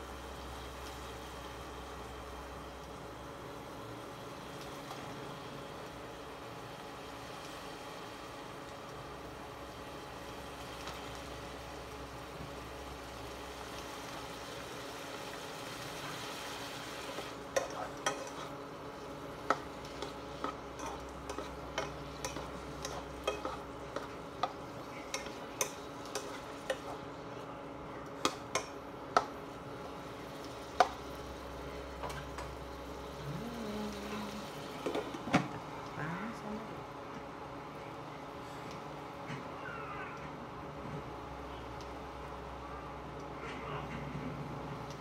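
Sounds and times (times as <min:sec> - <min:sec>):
food sizzling in a pot: 0:00.0 - 0:35.4.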